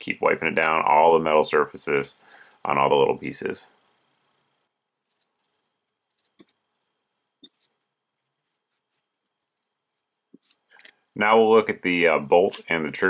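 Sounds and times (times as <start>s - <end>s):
cloth rubbing: 3.7s - 10.2s.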